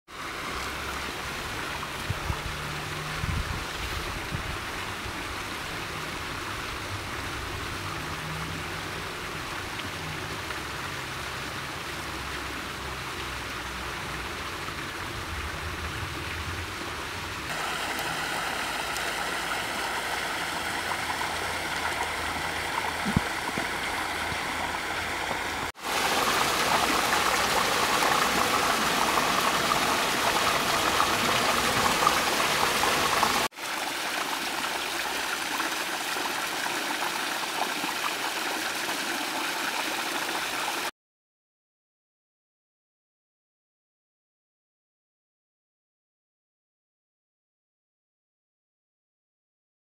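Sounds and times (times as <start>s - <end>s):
waterfall rushing over rocks: 17.5s - 40.9s.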